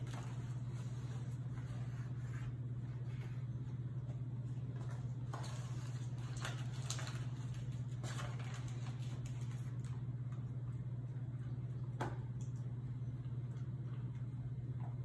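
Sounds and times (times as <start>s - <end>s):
low hum: 0.0s - 15.0s
paper bag crinkling: 5.1s - 10.0s.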